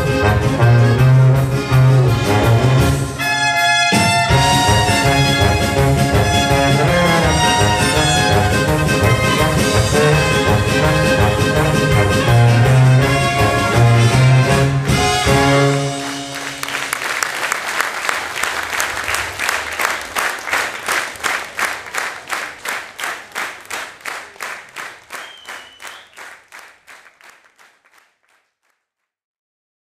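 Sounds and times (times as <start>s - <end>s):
brass band chord: 0.0s - 16.8s
audience clapping in unison: 14.6s - 29.1s.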